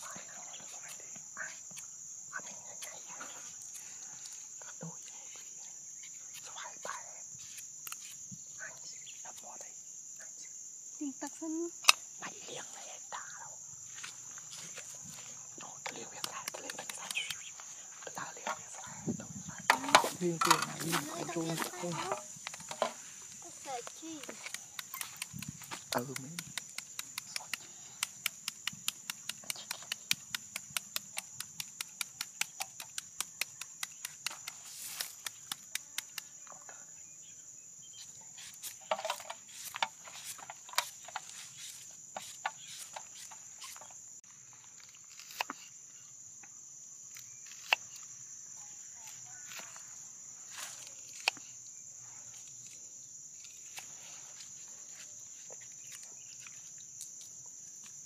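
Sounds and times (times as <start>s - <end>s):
high-pitched insect drone: 0.0s - 58.0s.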